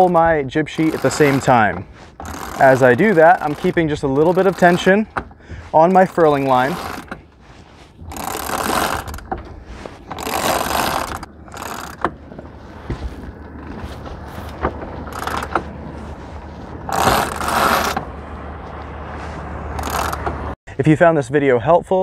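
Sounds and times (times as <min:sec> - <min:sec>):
winch ratchet clicking: 0:00.0 - 0:12.5, 0:15.1 - 0:15.6, 0:16.9 - 0:18.0, 0:19.8 - 0:20.4
rope hauled around winch: 0:00.0 - 0:20.6.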